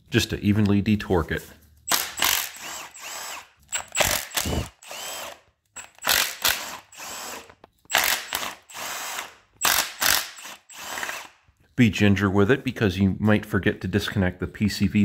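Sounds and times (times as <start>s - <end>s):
impact wrench motor whine: 1.9s - 11.4s.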